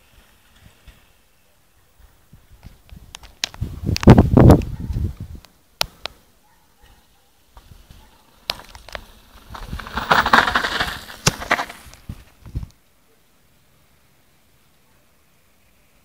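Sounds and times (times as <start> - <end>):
bike tyres crunching on dirt: 0.0 - 1.3, 7.6 - 12.6
bike clicks and knocks: 8.4 - 12.0.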